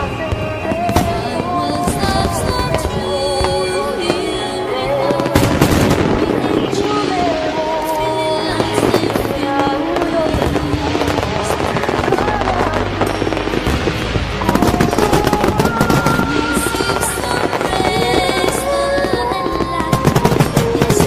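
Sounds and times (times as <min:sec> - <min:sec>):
background song: 0:00.0 - 0:21.0
fireworks popping and crackling: 0:00.0 - 0:21.0.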